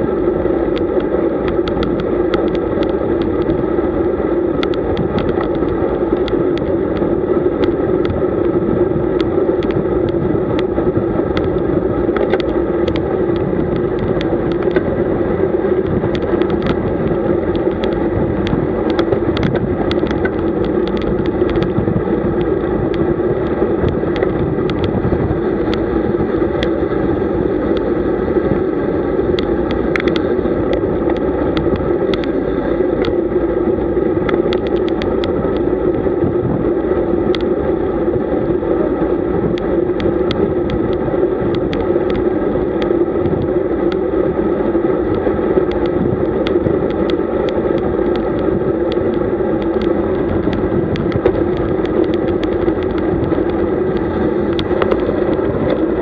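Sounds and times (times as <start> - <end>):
bicycle road noise: 0.0 - 56.0
wind buffeting microphone: 0.0 - 56.0
small clicks: 4.5 - 8.2, 11.3 - 14.9, 15.8 - 25.0, 29.3 - 33.2, 34.2 - 36.0, 45.0 - 56.0.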